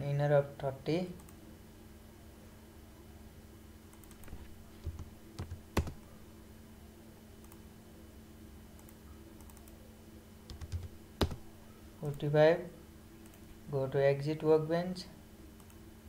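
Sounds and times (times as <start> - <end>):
faint steady hum: 0.0 - 16.0
computer keyboard key presses: 4.0 - 6.0, 10.5 - 11.5.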